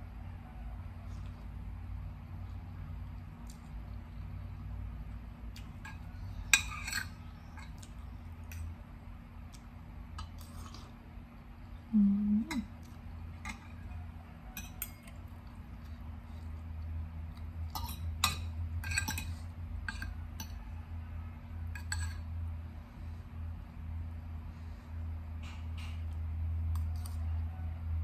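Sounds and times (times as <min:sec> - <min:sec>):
cutlery clinking on plate: 0:05.8 - 0:07.8, 0:14.5 - 0:15.2, 0:17.7 - 0:20.6, 0:21.7 - 0:22.3
person humming: 0:11.9 - 0:12.7.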